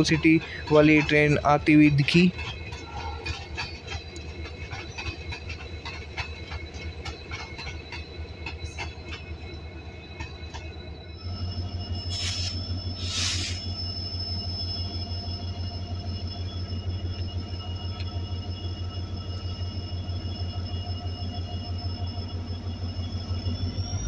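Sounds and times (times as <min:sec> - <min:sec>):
pulsing low engine hum: 0:00.0 - 0:24.0
train wheels and brakes squealing: 0:00.0 - 0:24.0
bursts of hiss: 0:12.1 - 0:13.6.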